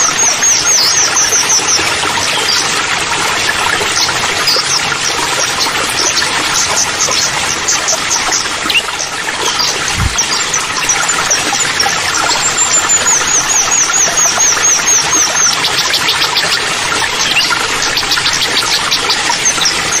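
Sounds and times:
waterfall rushing into pool: 0.0 - 20.0
small birds chirping: 3.9 - 20.0
low thump: 9.9 - 10.2.

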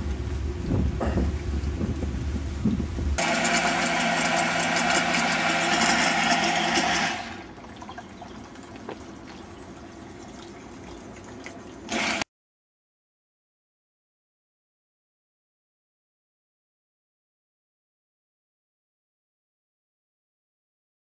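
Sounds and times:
electric pump motor hum: 0.0 - 12.3.

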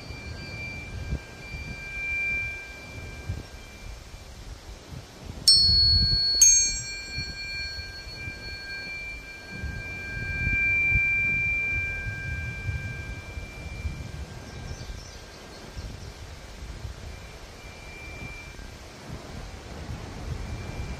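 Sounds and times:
tuning fork strike clang: 0.0 - 4.0, 5.5 - 15.3
tuning forks ringing pure tones: 0.0 - 20.9.

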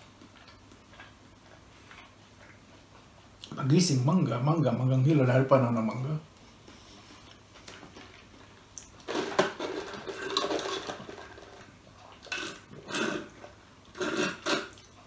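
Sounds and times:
slurping through a straw: 12.3 - 14.9.

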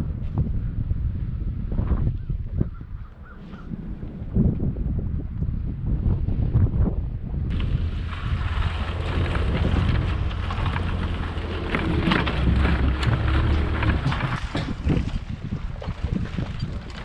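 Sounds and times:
wind buffeting microphone: 0.0 - 17.0
harrow clattering: 7.5 - 15.2
truck engine rumble: 7.5 - 15.8.

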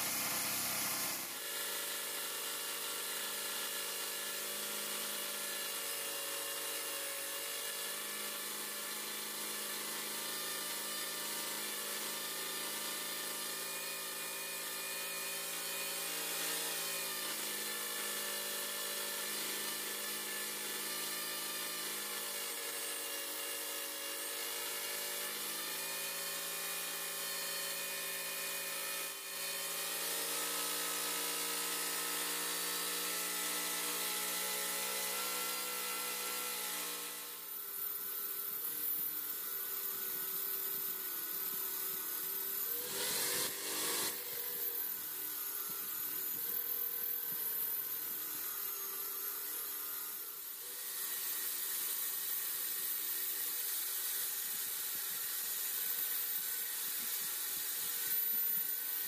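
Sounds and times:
angle grinder grinding wood: 0.0 - 59.0
electric drill motor whine: 0.0 - 59.0.

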